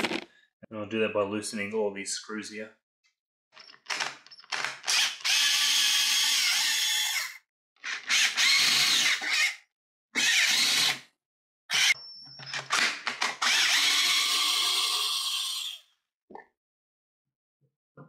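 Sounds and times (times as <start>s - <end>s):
cordless drill motor running: 4.9s - 9.6s, 10.2s - 11.0s, 13.4s - 15.8s.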